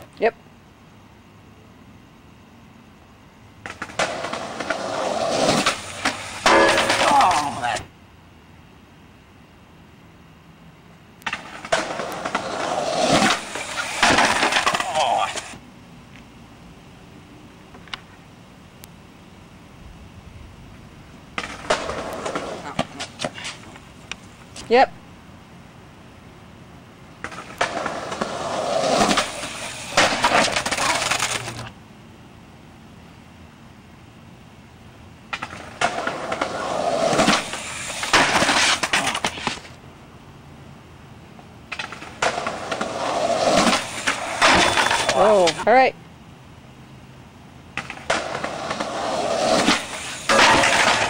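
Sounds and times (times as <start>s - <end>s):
skateboard wheels rolling on concrete: 0.0s - 51.0s
skateboard grinding along metal rail: 3.6s - 7.9s, 11.2s - 15.6s, 21.4s - 23.8s, 27.2s - 31.7s, 35.3s - 39.8s, 41.7s - 45.6s, 47.8s - 51.0s
skateboard clacking onto metal rail: 6.0s - 7.6s, 43.6s - 45.6s, 49.7s - 51.0s.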